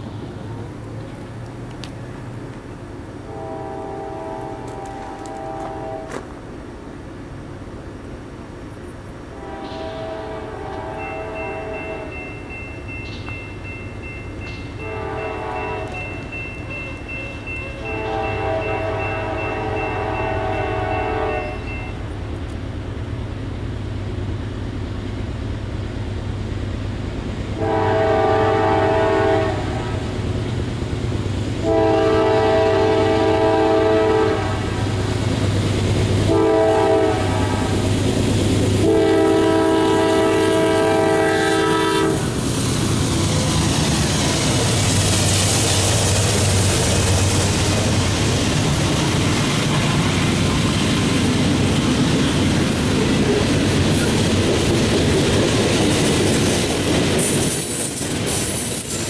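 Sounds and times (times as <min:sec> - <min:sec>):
train air horn blasts: 0:03.2 - 0:06.2, 0:09.3 - 0:12.2, 0:14.8 - 0:16.2, 0:16.9 - 0:22.0, 0:27.6 - 0:30.1, 0:31.6 - 0:35.0, 0:36.3 - 0:37.8, 0:38.8 - 0:42.4
locomotive engines running: 0:29.7 - 0:59.0.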